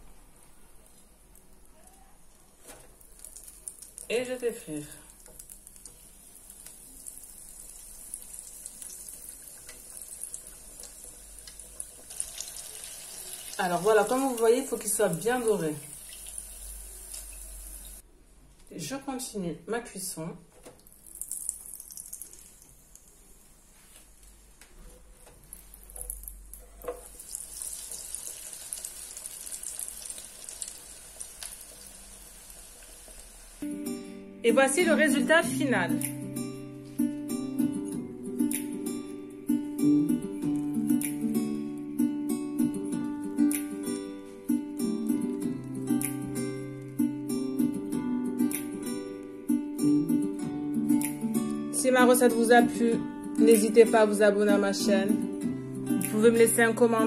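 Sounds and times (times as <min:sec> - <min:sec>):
small crackles: 0:00.8 - 0:04.1, 0:05.0 - 0:07.2, 0:27.5 - 0:33.2
oil bubbling and sizzling in a fryer: 0:03.0 - 0:04.1, 0:05.1 - 0:14.4, 0:15.8 - 0:18.0, 0:20.9 - 0:23.3, 0:25.5 - 0:33.6.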